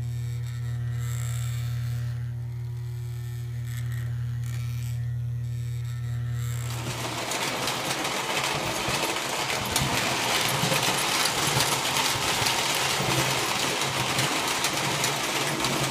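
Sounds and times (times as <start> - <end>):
toy train rattling on metal track: 6.7 - 15.9.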